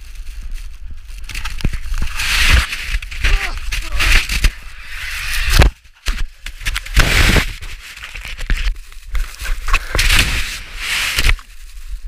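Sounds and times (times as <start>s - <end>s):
rushing hiss of avalanche snow: 0.0s - 5.6s, 6.8s - 12.0s
snow scraping against microphone: 0.0s - 12.0s.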